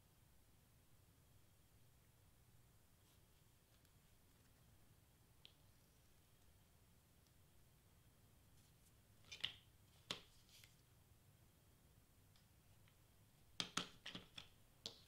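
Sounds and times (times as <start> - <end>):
paper clicks and taps: 13.6 - 15.0.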